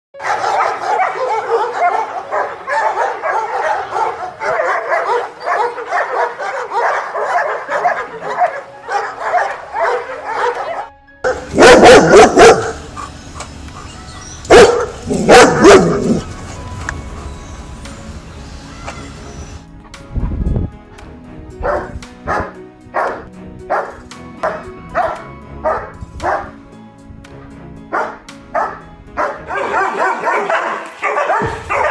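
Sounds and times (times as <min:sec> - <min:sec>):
dog barking loudly: 0:00.2 - 0:13.1, 0:14.5 - 0:16.2, 0:21.6 - 0:26.5, 0:27.9 - 0:31.9
background music: 0:00.2 - 0:31.9.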